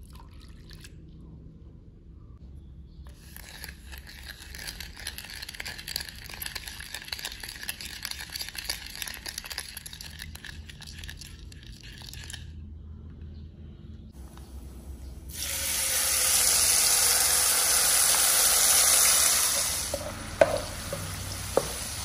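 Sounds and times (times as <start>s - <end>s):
spoon stirring sauce: 3.1s - 12.5s, 19.6s - 22.0s.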